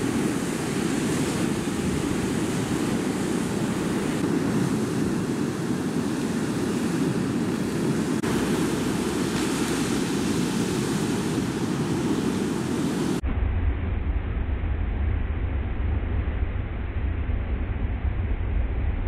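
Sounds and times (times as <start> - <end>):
ocean surf breaking: 0.0 - 13.2
wind on microphone: 0.0 - 19.0.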